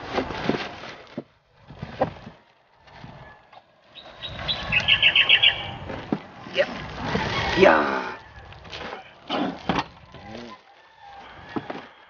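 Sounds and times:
packaging rustling: 0:06.7 - 0:12.0.

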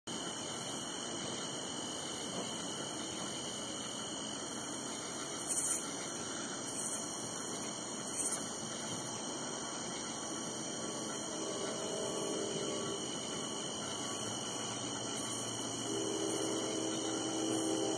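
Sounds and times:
crickets and insects chirping: 0:00.1 - 0:17.9
short louder insect calls: 0:00.3 - 0:17.9.

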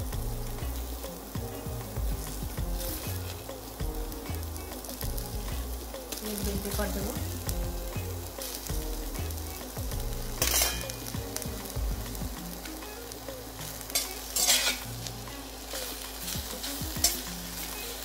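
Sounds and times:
peppers sizzling in oil: 0:00.0 - 0:18.0
spatula scraping pan: 0:10.4 - 0:11.1, 0:13.8 - 0:18.0.

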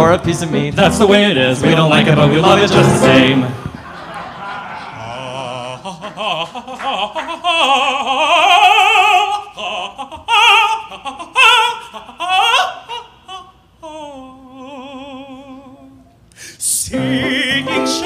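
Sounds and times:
person singing operatic vocalise: 0:04.9 - 0:18.0.

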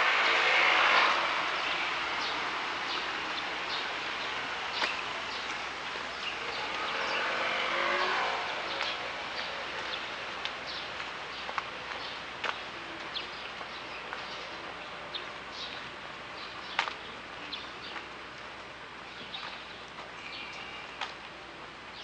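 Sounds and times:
vehicle engine passing: 0:00.0 - 0:11.8
motor scooter engine pulling away: 0:02.9 - 0:10.1
bird chirps: 0:19.1 - 0:21.0.

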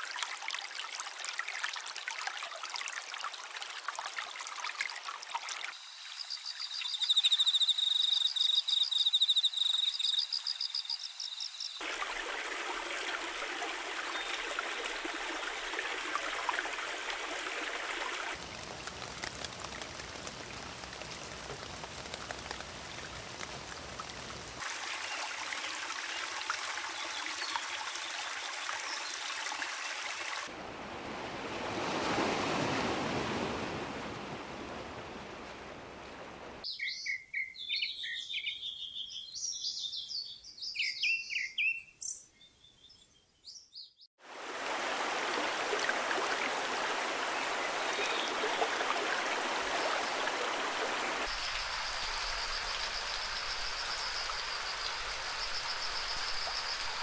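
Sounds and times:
running water rushing: 0:00.0 - 0:06.0, 0:11.8 - 0:36.6, 0:44.2 - 0:57.0.

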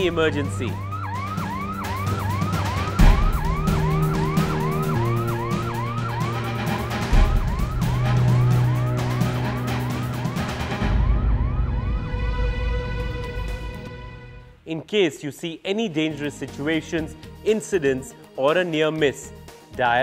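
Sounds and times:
whooping alarm siren: 0:00.0 - 0:13.9
background music: 0:00.0 - 0:20.0.

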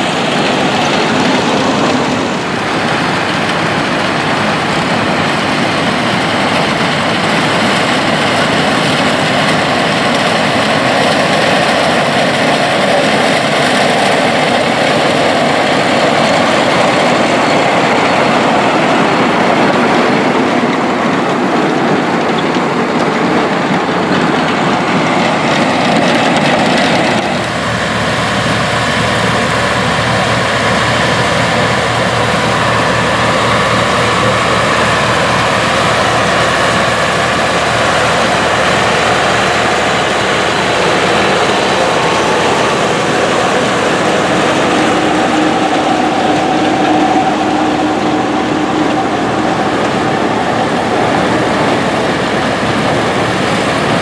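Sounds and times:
tractor engines under load: 0:00.0 - 0:54.0.

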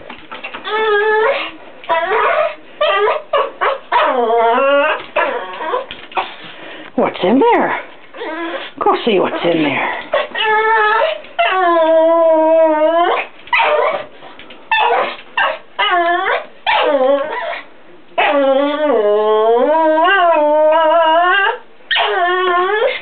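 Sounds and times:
small dog whining and yipping: 0:00.6 - 0:06.3, 0:10.1 - 0:14.1, 0:14.7 - 0:23.0.

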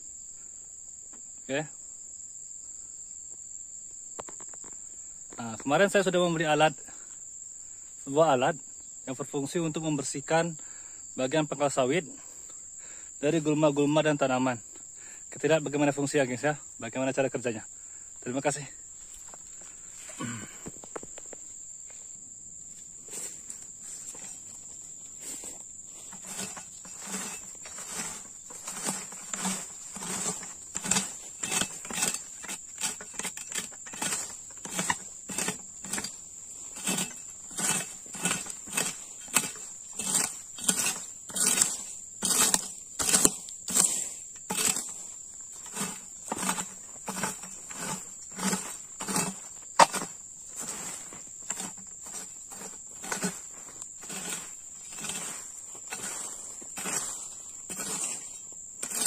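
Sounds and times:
high insect buzz: 0:00.0 - 0:59.0
hoe scraping and chopping soil: 0:04.2 - 0:07.2, 0:18.3 - 0:59.0.

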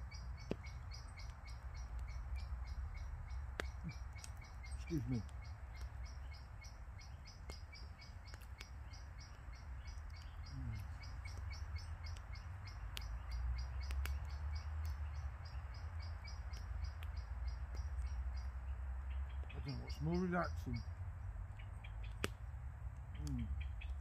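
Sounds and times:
small bird chirping: 0:00.0 - 0:22.3, 0:23.0 - 0:24.0
sharp ticks: 0:00.4 - 0:06.4, 0:07.0 - 0:18.5.

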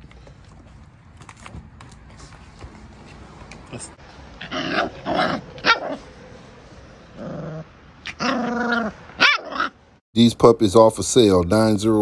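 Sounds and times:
puppy barking: 0:04.4 - 0:06.1, 0:08.0 - 0:09.8
puppy yapping and yipping: 0:04.4 - 0:06.1, 0:08.0 - 0:09.8.

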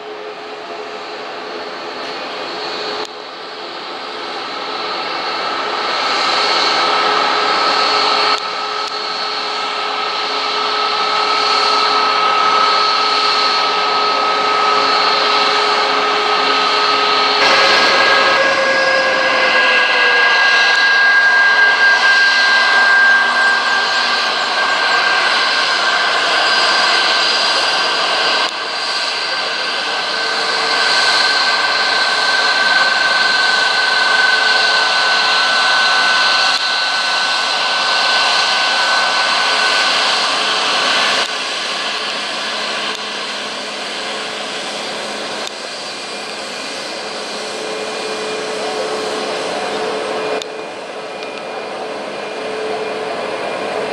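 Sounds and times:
jet engines at taxi power: 0:00.0 - 0:53.9
high whining tones: 0:11.9 - 0:29.5.

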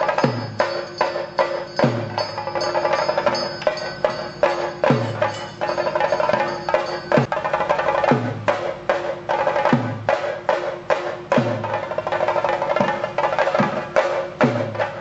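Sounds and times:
steady ringing tones: 0:00.0 - 0:08.1
drums struck in steady rhythm: 0:00.0 - 0:15.0.

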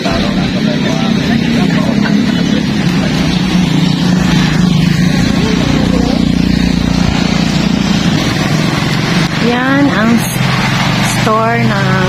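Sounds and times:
road and wind noise: 0:00.0 - 0:12.0
vehicle engine humming: 0:00.0 - 0:12.0.

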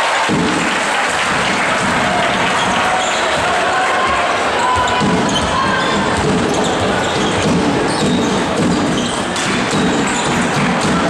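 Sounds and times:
arena crowd din: 0:00.0 - 0:11.0
basketball bouncing on hardwood: 0:04.1 - 0:11.0.

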